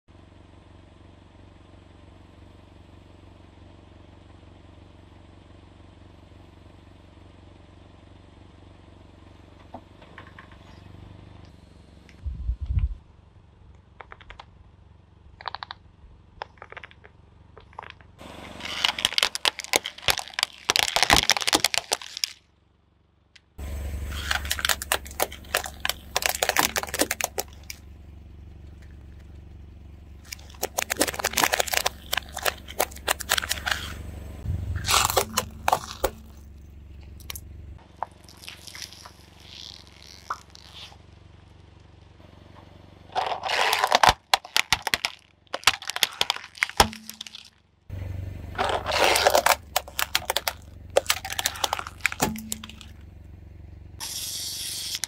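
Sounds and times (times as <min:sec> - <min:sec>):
low steady rumble: 0:00.1 - 0:55.0
tyre crushing plastic toys: 0:16.4 - 0:22.4, 0:24.0 - 0:27.8, 0:30.2 - 0:34.0, 0:34.7 - 0:41.0, 0:43.1 - 0:47.6, 0:48.5 - 0:53.0.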